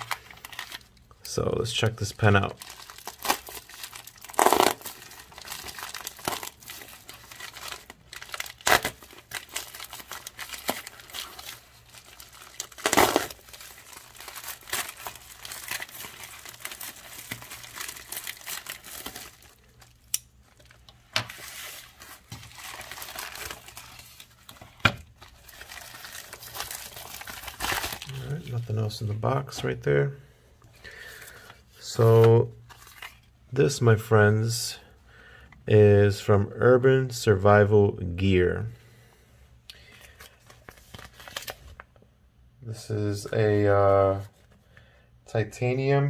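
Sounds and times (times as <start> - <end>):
plastic mailer crinkling: 0.0 - 1.1, 1.7 - 29.6
plastic ripping: 2.4 - 28.6.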